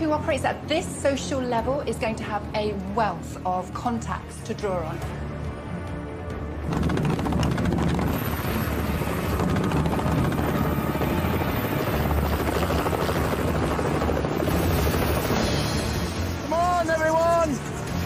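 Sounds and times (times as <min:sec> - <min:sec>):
helicopter engine whine: 0:06.6 - 0:18.0
helicopter rotor chopping: 0:06.6 - 0:18.0.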